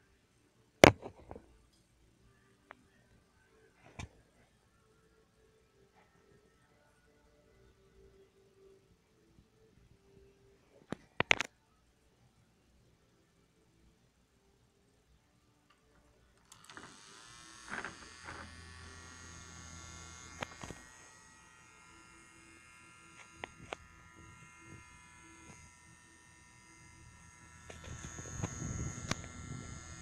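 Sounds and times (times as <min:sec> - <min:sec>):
mini fan motor whine: 0:16.4 - 0:30.0.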